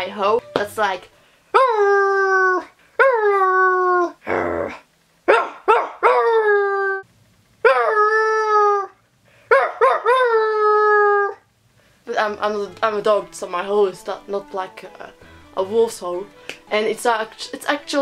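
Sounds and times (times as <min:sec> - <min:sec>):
person imitating dog howls: 0:01.6 - 0:04.8, 0:06.1 - 0:07.0, 0:07.7 - 0:09.0, 0:09.8 - 0:11.4.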